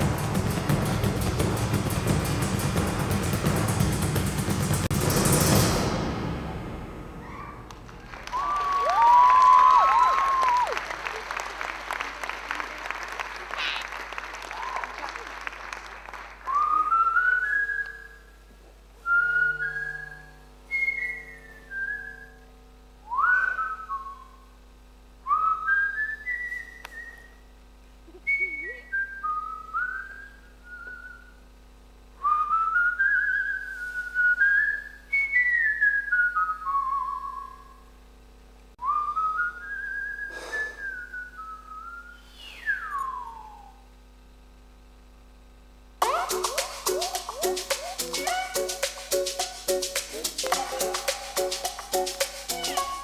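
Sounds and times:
person whistling a tune: 16.5s - 18.4s, 19.0s - 22.4s, 23.1s - 24.4s, 25.3s - 27.4s, 28.2s - 31.4s, 32.2s - 37.7s, 38.8s - 43.8s, 46.0s - 53.0s.

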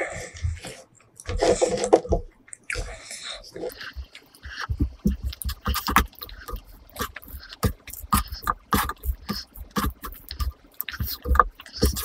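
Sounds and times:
hand squelching sticky rice: 2.9s - 12.0s.

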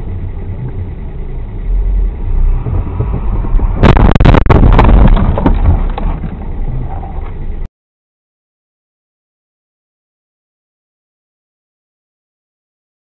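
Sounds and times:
car road and engine rumble: 0.0s - 7.7s
car crash with bangs and crunches: 2.5s - 7.4s.

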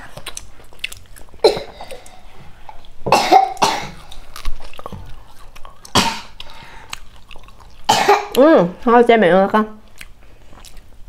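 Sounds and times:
person coughing: 1.4s - 2.0s, 3.1s - 4.1s, 5.9s - 6.4s, 7.9s - 8.4s.

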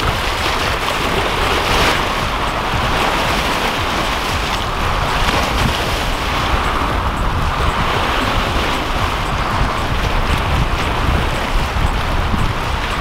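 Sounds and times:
waves breaking over rocks: 0.0s - 13.0s
wind rumbling on microphone: 0.0s - 13.0s.

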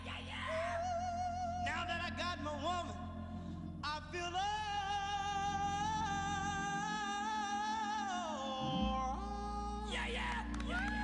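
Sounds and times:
person singing a long note: 4.5s - 11.0s
backing music: 5.4s - 11.0s.

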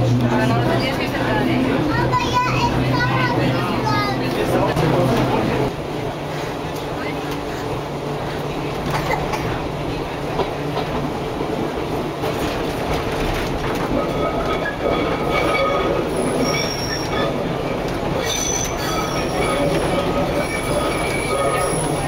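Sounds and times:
tram wheels rumbling on rail: 0.0s - 22.0s
wheels squealing on curve: 14.6s - 17.5s, 18.2s - 22.0s.

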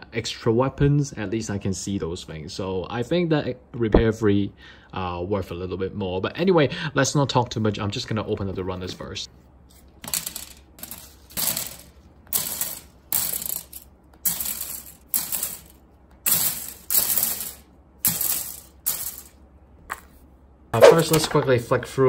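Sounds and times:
plastic pieces clattering on table: 10.0s - 20.1s.

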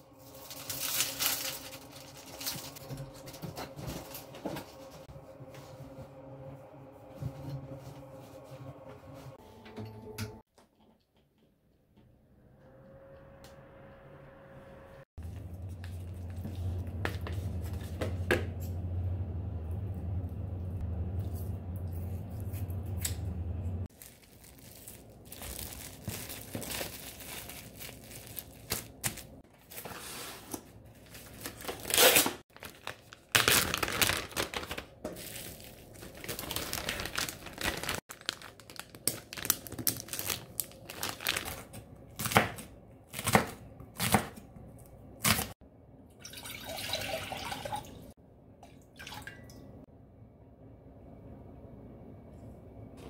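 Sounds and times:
plastic wrap crinkling and tearing: 0.0s - 3.3s, 23.9s - 42.6s
low steady hum: 12.0s - 29.8s.

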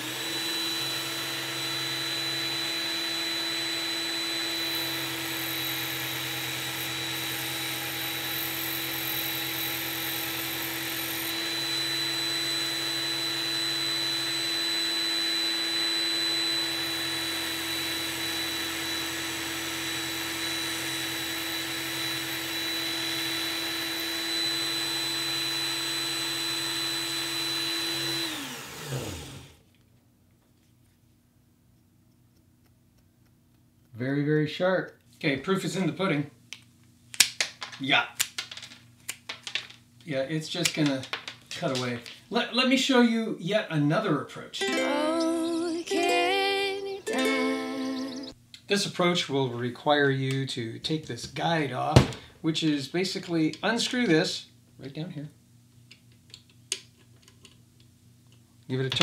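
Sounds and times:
belt sharpener motor whine: 0.0s - 29.6s, 47.2s - 48.4s.

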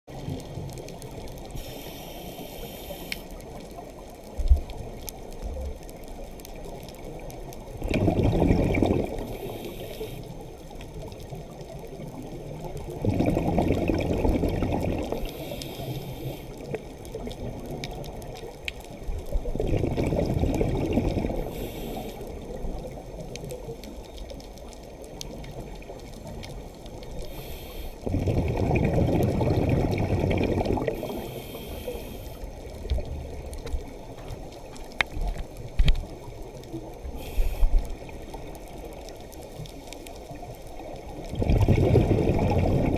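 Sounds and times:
faint high hiss: 0.2s - 3.8s, 9.0s - 12.8s, 14.8s - 17.2s, 21.2s - 28.1s, 30.6s - 41.3s
low underwater rumble: 3.4s - 9.7s, 10.6s - 42.9s
exhaled bubbles underwater: 3.4s - 42.9s.

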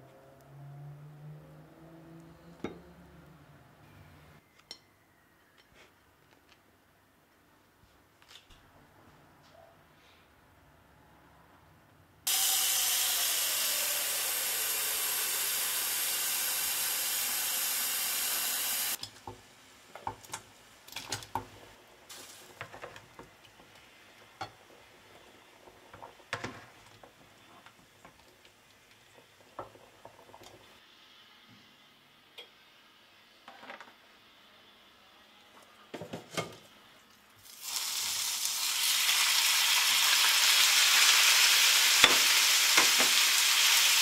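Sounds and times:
loud steady hiss: 12.3s - 22.7s.

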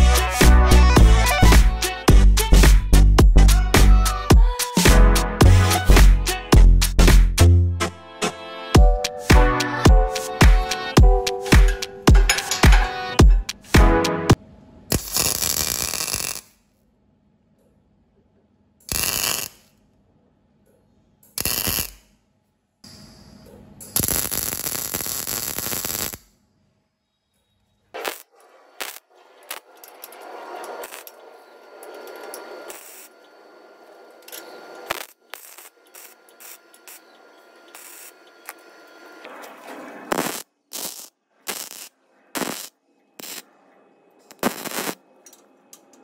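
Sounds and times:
arc welding crackle and hiss: 14.9s - 16.6s, 18.8s - 19.8s, 21.4s - 22.2s, 22.8s - 26.4s, 28.0s - 39.3s, 40.1s - 43.5s, 44.2s - 45.0s
welding pops: 14.9s - 16.6s, 18.9s - 19.8s, 21.4s - 22.1s, 23.8s - 26.3s, 28.0s - 31.2s, 34.8s - 38.6s, 40.1s - 43.4s, 44.3s - 45.0s.

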